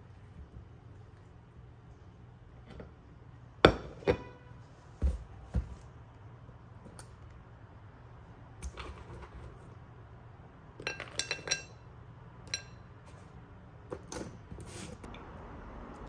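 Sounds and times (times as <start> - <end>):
peanuts clinking on ceramic plate: 10.8 - 11.8.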